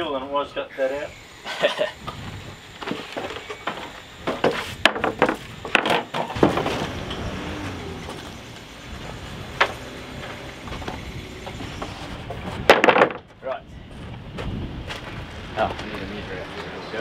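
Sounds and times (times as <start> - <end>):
wooden boards knocking: 2.8 - 6.9, 12.3 - 13.3.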